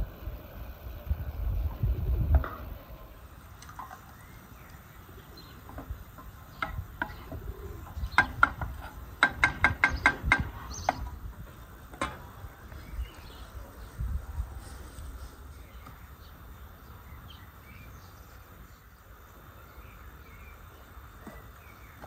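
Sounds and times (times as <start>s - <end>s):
small birds chirping: 3.6s - 8.6s, 9.7s - 22.0s.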